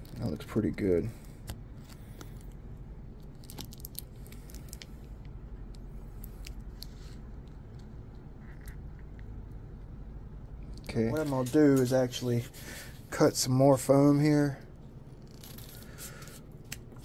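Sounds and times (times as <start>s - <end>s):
small clicks and crinkles: 0.0s - 2.6s, 3.2s - 9.6s, 15.2s - 17.0s
steady low hum: 0.0s - 17.0s.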